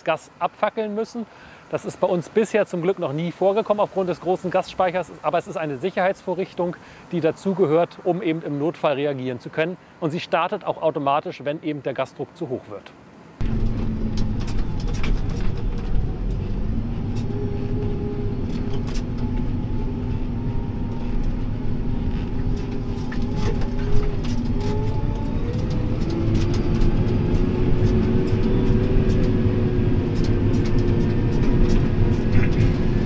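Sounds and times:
heavy machinery engine running: 13.4 - 33.0.

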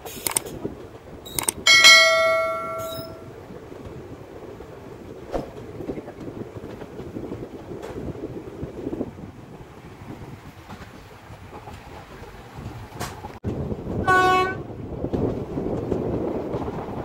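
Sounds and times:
passenger train running: 0.0 - 17.0
bell chime: 1.7 - 3.2.

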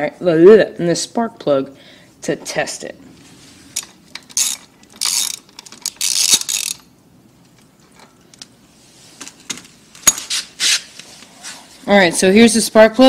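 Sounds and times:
socket ratchet clicking: 4.1 - 6.9.

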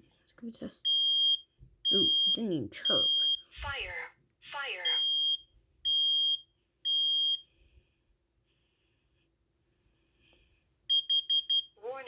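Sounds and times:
smoke alarm beeping: 0.8 - 3.5, 4.8 - 7.5, 10.9 - 11.8.

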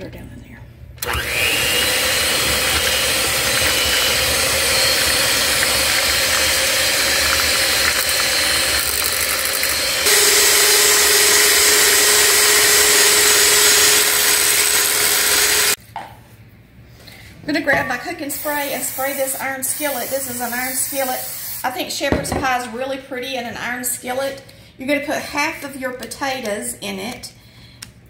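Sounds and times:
electric hand mixer whining: 1.0 - 15.8.

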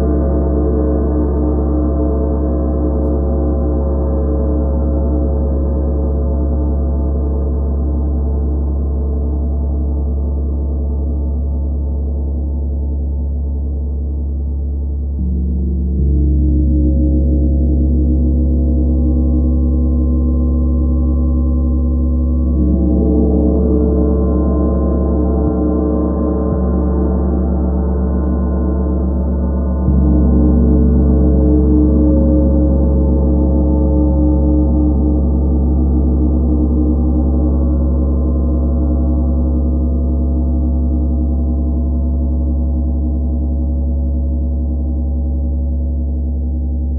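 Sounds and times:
gong drone: 15.1 - 46.9.

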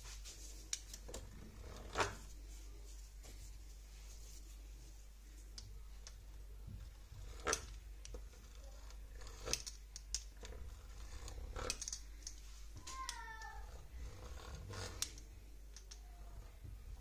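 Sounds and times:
pastry wheel clicking on dough: 6.9 - 16.0.

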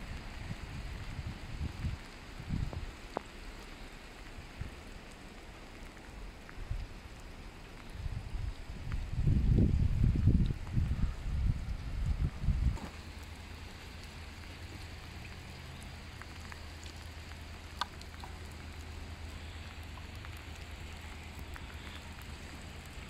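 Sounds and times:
wind buffeting microphone: 0.0 - 3.0, 7.9 - 13.0
raindrop ticks: 0.0 - 23.0
steady rain falling: 0.0 - 23.0.

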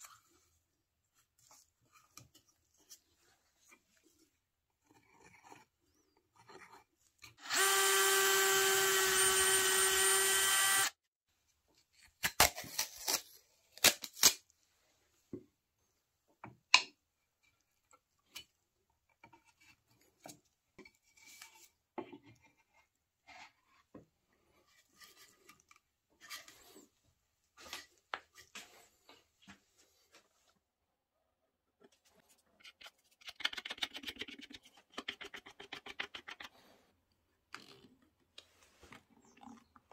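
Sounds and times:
cordless drill drilling wood: 7.4 - 11.0.

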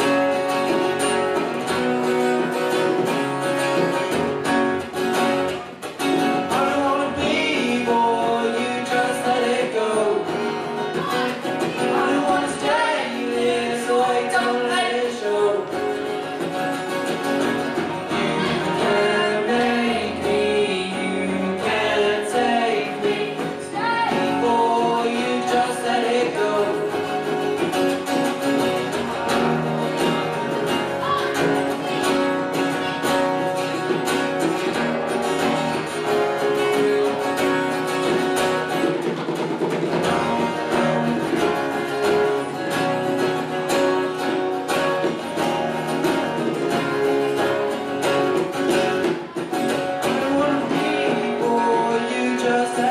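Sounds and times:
acoustic guitars strumming: 0.0 - 52.9
young man singing: 6.2 - 16.3, 18.0 - 27.6, 46.4 - 52.9.

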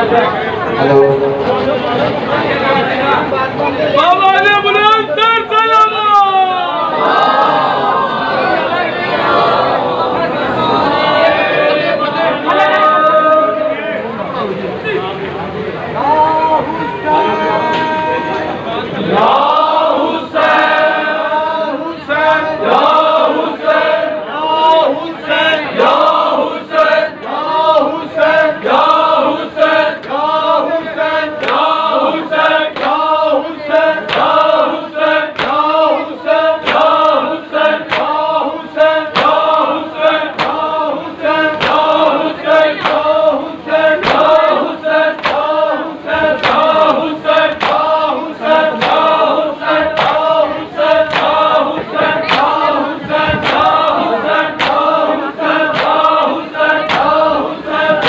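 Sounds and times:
men chanting in unison: 18.9 - 58.0
hands slapping chests: 40.4 - 40.7, 47.4 - 47.9, 49.9 - 50.3, 51.1 - 51.5, 53.4 - 53.8, 54.6 - 54.9, 56.8 - 57.2.

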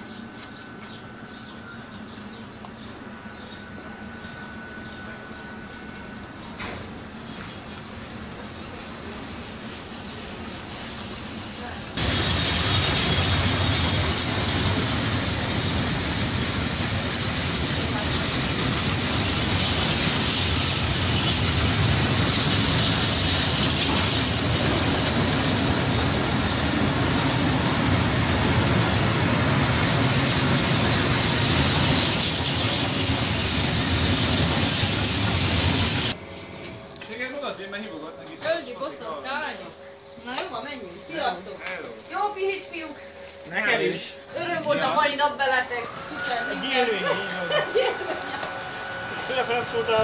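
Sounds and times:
steel wheels rumbling on rail: 3.7 - 36.2, 45.4 - 50.0
high-pitched hiss: 7.2 - 38.3, 40.2 - 50.0.

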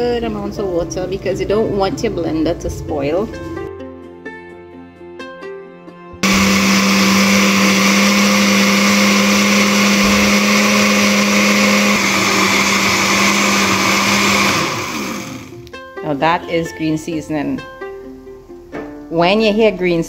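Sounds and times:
blender motor whirring: 6.2 - 15.6.

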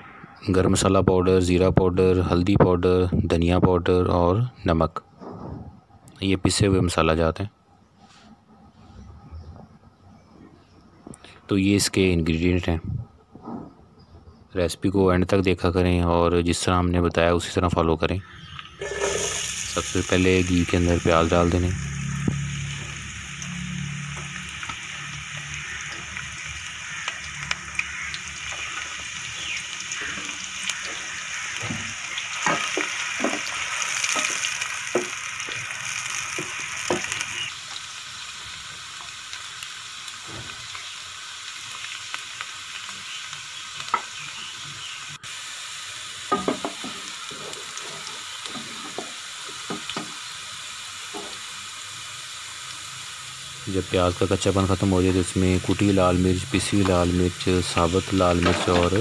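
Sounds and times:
onions sizzling in fat: 18.2 - 59.0.

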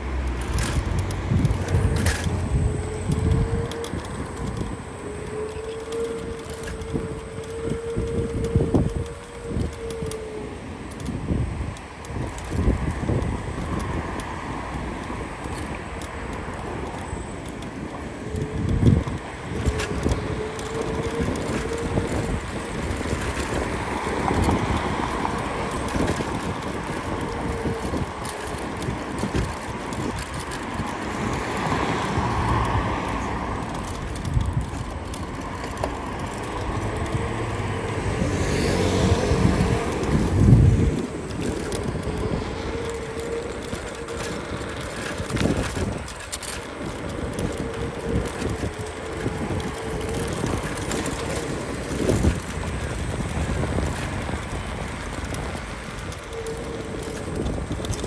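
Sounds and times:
rumbling road noise: 0.0 - 58.0
scooter high whine: 0.0 - 58.0
wind: 0.0 - 58.0
passing vehicle engine: 18.2 - 58.0.

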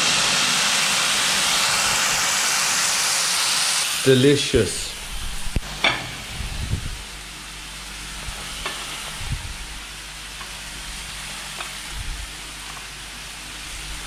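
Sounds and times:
sausage sizzling in a pan: 0.0 - 6.3, 7.0 - 14.0.

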